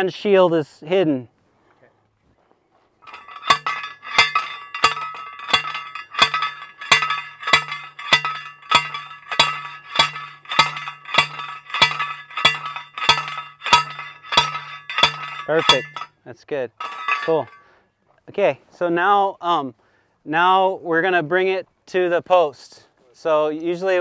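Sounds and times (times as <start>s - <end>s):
metal driver striking fence post: 3.1s - 16.1s, 16.8s - 17.6s.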